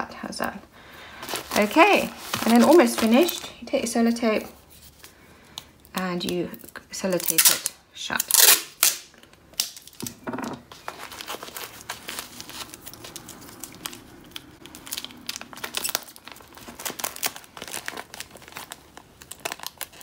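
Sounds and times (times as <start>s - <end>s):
crisp packet crinkling: 1.1s - 3.7s, 6.0s - 10.0s, 10.7s - 20.0s.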